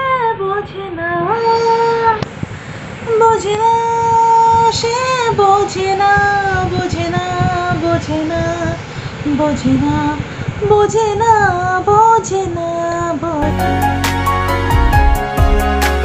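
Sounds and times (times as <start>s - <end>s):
woman singing a slow tune: 0.0s - 2.4s, 3.0s - 13.5s.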